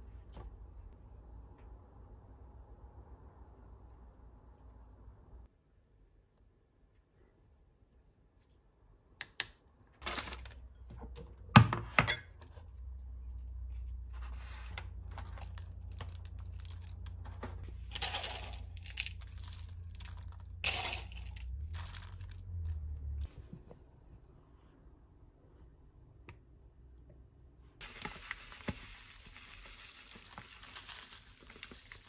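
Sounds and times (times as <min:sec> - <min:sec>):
snack packets crinkling and tearing: 0:15.2 - 0:17.2, 0:17.9 - 0:22.8, 0:27.8 - 0:32.0
toppings dropping into wooden bowl: 0:17.9 - 0:22.4.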